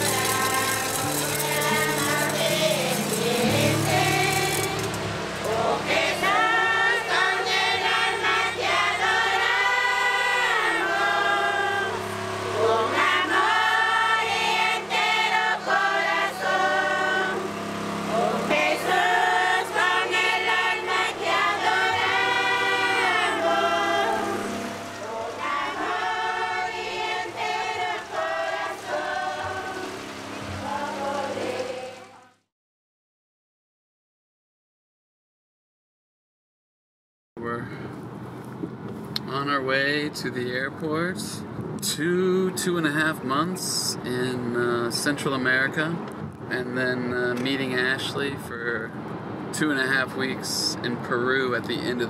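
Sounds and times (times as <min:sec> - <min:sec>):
congregation singing a hymn: 0:00.0 - 0:32.4.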